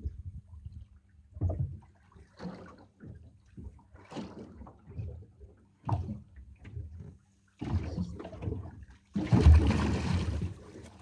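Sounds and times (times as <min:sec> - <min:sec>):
waves lapping against boat hull: 0:00.0 - 0:11.0.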